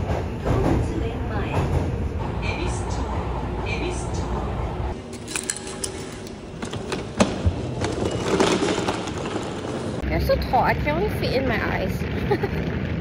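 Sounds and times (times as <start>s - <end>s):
ticket gate mechanical clicks: 5.0s - 7.2s
ticket gate clack: 5.0s - 9.8s.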